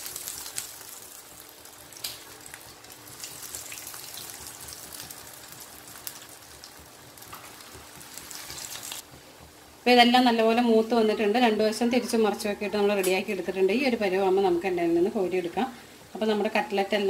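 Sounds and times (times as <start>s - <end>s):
hot oil sizzling and popping: 0.0s - 10.3s.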